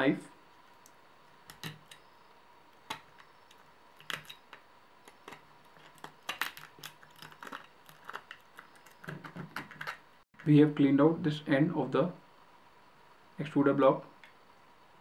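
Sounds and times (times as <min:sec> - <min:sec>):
knife scraping plastic: 0:02.9 - 0:10.0.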